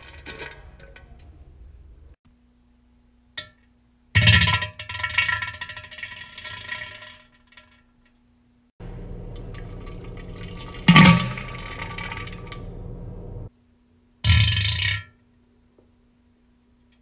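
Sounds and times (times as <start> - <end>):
background noise: 0.0 - 17.0
wet spluttering farts: 10.4 - 12.4.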